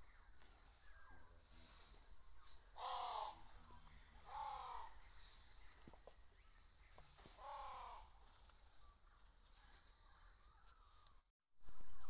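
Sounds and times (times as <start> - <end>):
crow cawing: 2.8 - 3.5, 4.3 - 5.0, 7.4 - 8.2.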